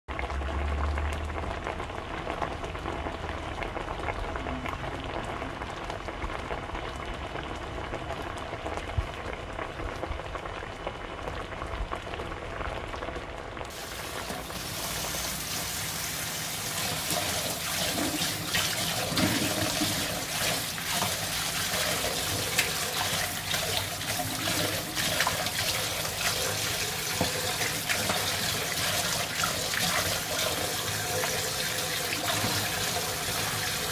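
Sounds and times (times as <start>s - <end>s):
tap running into steel bowl: 27.0s - 30.6s, 32.1s - 33.5s.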